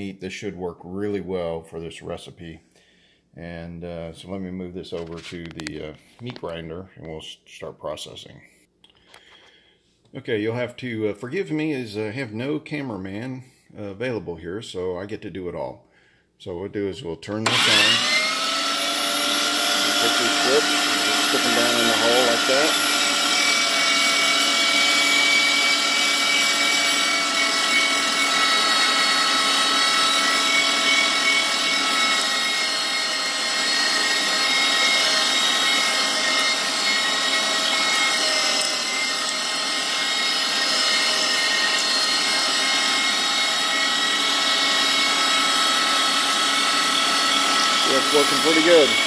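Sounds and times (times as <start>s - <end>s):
meat grinder motor whining: 17.4s - 49.0s.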